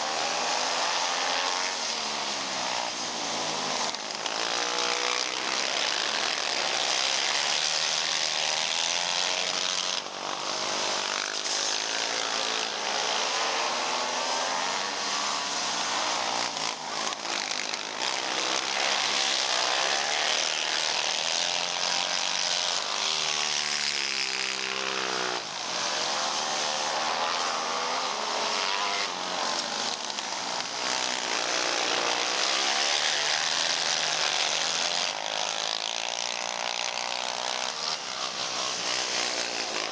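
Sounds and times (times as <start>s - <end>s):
atv engines revving: 0.0s - 39.9s.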